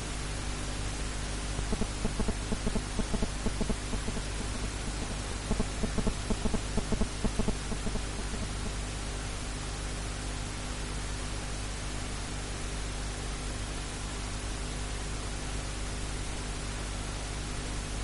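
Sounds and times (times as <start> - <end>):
static hiss: 0.0 - 18.0
low hum: 1.4 - 8.8
rapid low pulses: 1.6 - 8.8.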